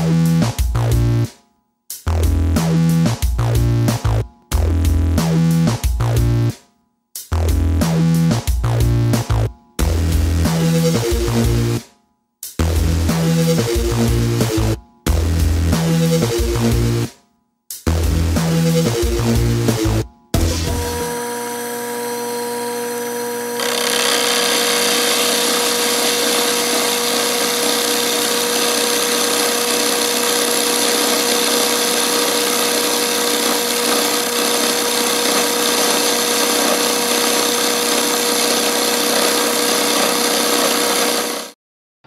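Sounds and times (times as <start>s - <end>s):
cutter cutting metal: 20.4s - 41.6s
milling machine motor whine: 20.6s - 41.5s.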